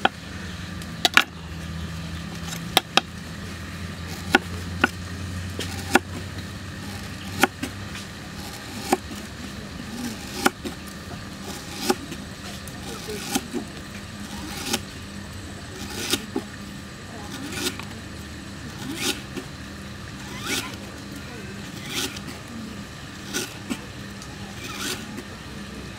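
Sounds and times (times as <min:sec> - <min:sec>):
steady low hum: 0:00.0 - 0:25.9
knife chopping on wooden board: 0:04.2 - 0:05.0, 0:05.6 - 0:06.2, 0:06.9 - 0:07.7, 0:08.4 - 0:09.1, 0:10.2 - 0:10.8.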